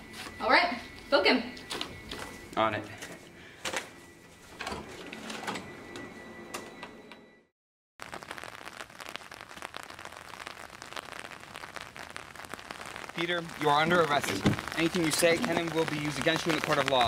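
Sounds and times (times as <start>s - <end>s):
rain pattering on wet pavement: 8.0s - 17.0s.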